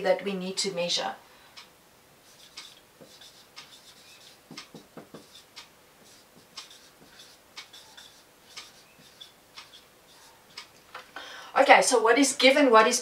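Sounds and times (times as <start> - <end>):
marker pen writing on whiteboard: 2.2 - 10.7.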